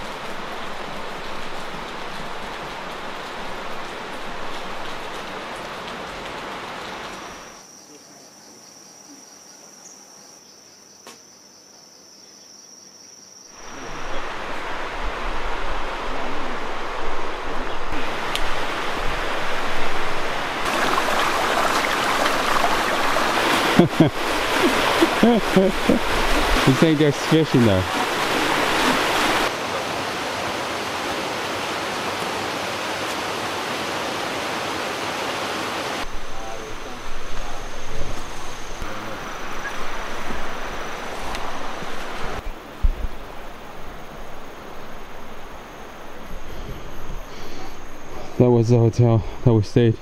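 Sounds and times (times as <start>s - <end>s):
stream cascading over rocks: 0.0s - 7.5s, 13.6s - 46.2s
insect trilling: 43.4s - 49.6s.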